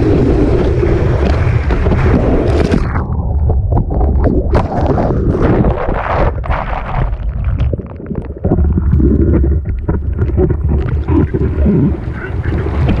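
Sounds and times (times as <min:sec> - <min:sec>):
wind buffeting microphone: 0:00.0 - 0:06.5
whitewater foaming and splashing: 0:09.1 - 0:13.0.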